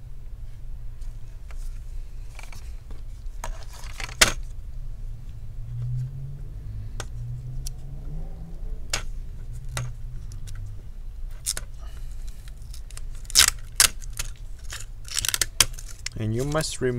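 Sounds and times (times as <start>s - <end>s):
circuit board handling clatter: 3.4s - 4.5s, 12.3s - 16.2s.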